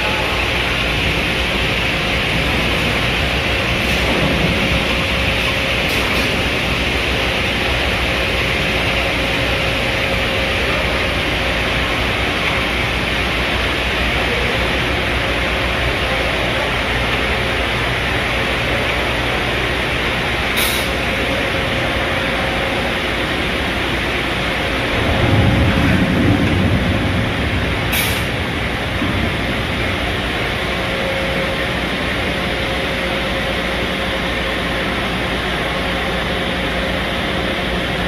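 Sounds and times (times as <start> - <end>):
industrial machinery hiss: 20.4 - 22.2, 27.9 - 28.4
low rumble: 24.6 - 34.1.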